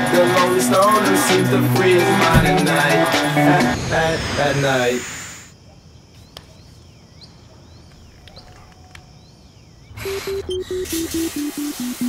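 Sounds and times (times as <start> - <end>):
shower water spraying: 10.8 - 12.0.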